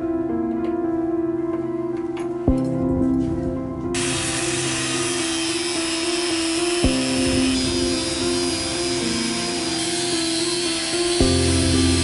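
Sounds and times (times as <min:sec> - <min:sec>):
soft piano music: 0:00.0 - 0:12.0.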